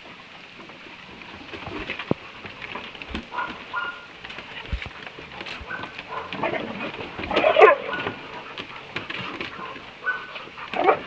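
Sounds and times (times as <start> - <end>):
dogs play-fighting: 1.0 - 11.0
claws clicking on wooden boards: 1.8 - 10.9
dog vocalizing: 3.3 - 4.1, 5.6 - 11.0
dog whining: 5.6 - 8.2.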